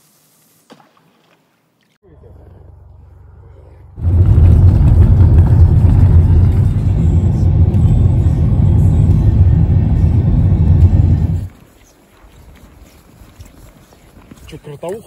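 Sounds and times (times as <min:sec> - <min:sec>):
car driving rumble: 0:02.1 - 0:11.5.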